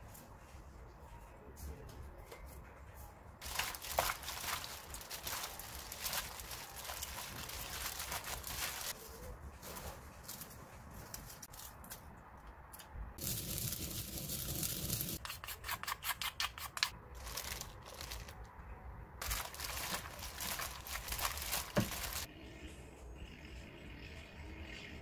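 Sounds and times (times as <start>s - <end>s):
gloved hand crinkling mixing vegetables: 3.4s - 9.0s, 17.2s - 18.4s, 19.2s - 22.3s.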